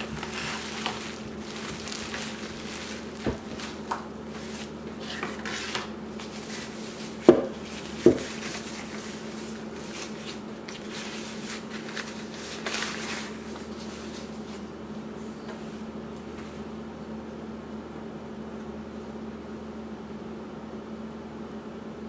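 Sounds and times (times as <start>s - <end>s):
packaging rustling: 0.0s - 14.7s.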